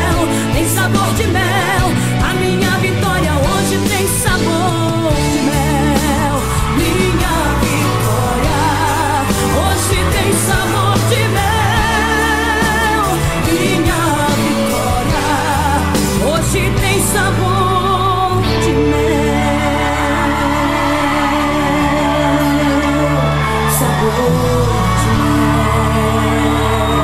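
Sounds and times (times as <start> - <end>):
gospel pop song by band: 0.0 - 27.0
person singing with vibrato: 0.0 - 27.0.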